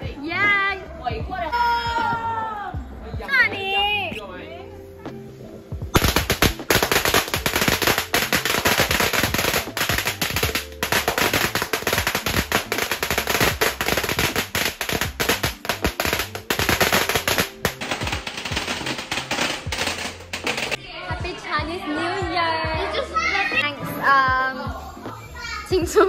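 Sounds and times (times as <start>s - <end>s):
firecrackers banging and crackling: 5.9s - 20.8s.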